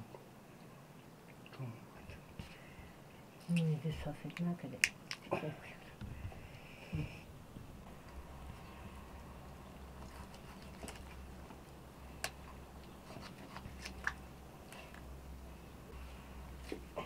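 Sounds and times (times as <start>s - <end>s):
low steady hum: 0.0s - 17.0s
sharp clicks and cracks: 3.5s - 5.3s.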